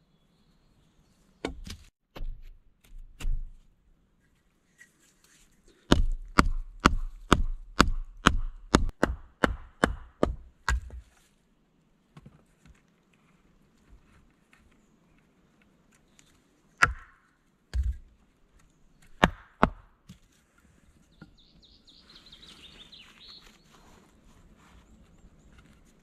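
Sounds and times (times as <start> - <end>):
hatchet chopping wood: 1.4 - 3.6, 5.9 - 11.0, 16.8 - 18.0, 19.0 - 19.9.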